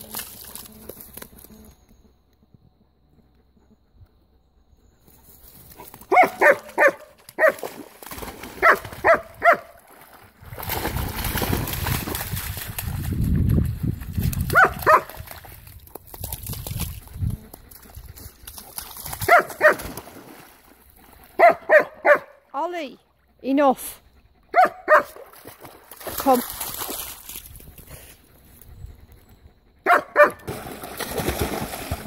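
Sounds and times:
water sloshing and splashing: 6.7 - 21.4, 25.0 - 28.2, 30.4 - 32.0
dog yapping: 21.4 - 22.3, 24.5 - 25.2, 29.8 - 30.5.

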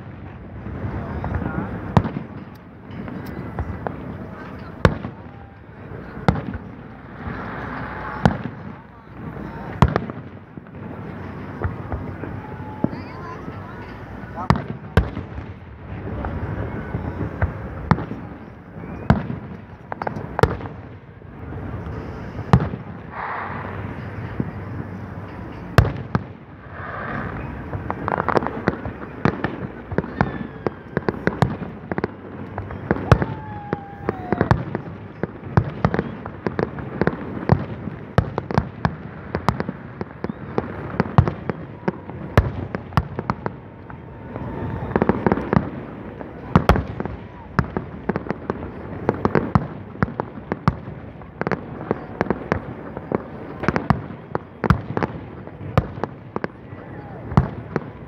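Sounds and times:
fireworks bangs and crackling: 0.0 - 58.0
firework falling whistle: 18.6 - 20.1, 30.0 - 31.5, 32.6 - 34.8, 40.0 - 45.7.

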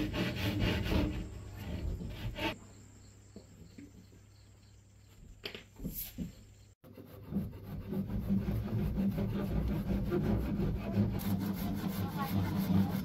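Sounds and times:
hand saw cutting bamboo: 0.0 - 2.6, 6.8 - 13.0.

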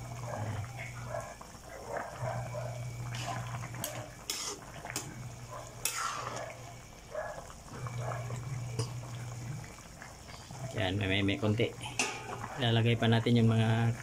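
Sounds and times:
steady low hum: 0.0 - 14.0
stew simmering: 0.0 - 14.0
metal ladle clinking against pot: 12.0 - 12.5.

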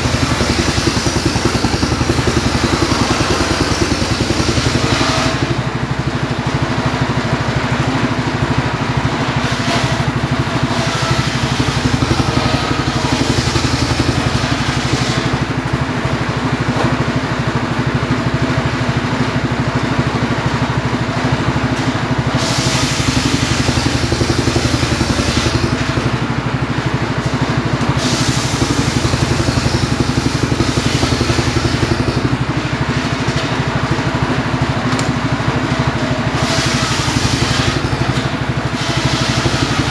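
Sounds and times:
engine running steadily: 0.0 - 39.9
saw blade hissing in wood: 22.4 - 25.8, 28.0 - 32.3, 36.4 - 38.1.

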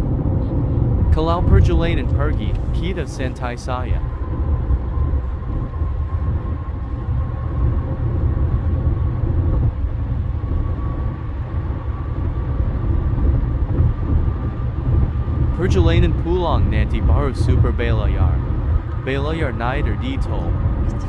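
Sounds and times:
faint steady whine: 0.0 - 21.0
road and tyre rumble in car: 0.0 - 21.0.

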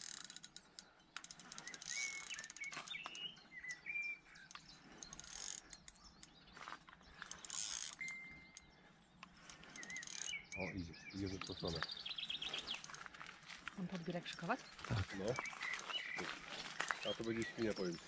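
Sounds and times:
fishing reel clicking: 0.0 - 3.2, 4.5 - 6.3, 7.2 - 10.7
bird chirping: 0.0 - 18.0.

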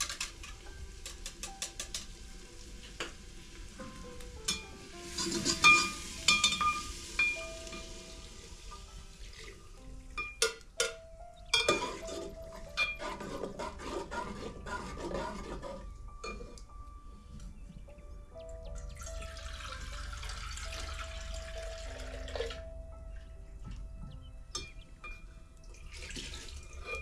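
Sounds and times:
hot pot sizzling: 0.0 - 16.8, 18.4 - 23.0
metal ladle scraping a pot: 5.1 - 7.4, 11.6 - 16.6, 26.8 - 27.0.

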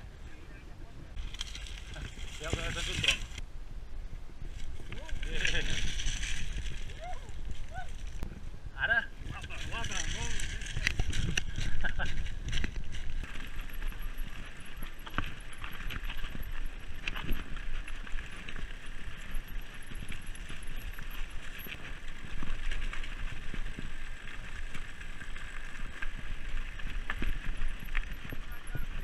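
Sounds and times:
bike rattling: 0.9 - 3.4, 4.4 - 29.0
tyres crunching over loose stones: 1.2 - 3.4, 4.5 - 8.3, 9.2 - 29.0
freewheel hub ticking: 12.4 - 29.0.

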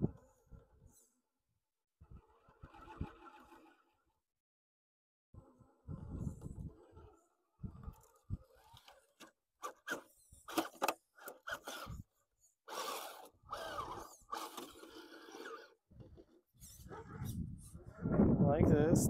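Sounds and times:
electric motor whining: 5.4 - 18.3
tyres scraping over rocks: 12.7 - 18.0.

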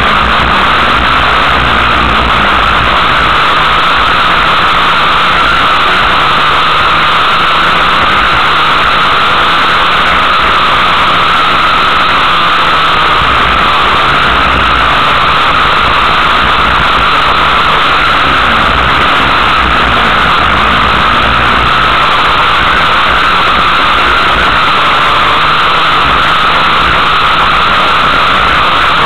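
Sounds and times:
race car engine running hard: 0.0 - 29.0.

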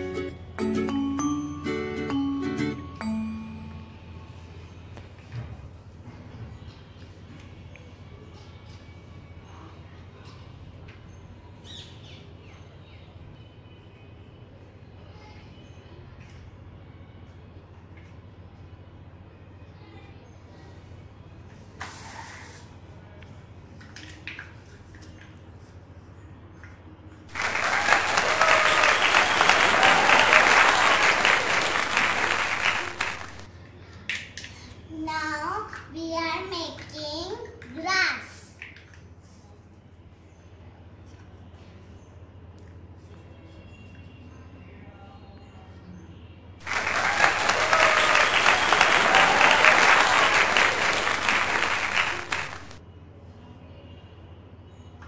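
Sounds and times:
crowd applause: 27.3 - 33.5, 46.6 - 52.8.

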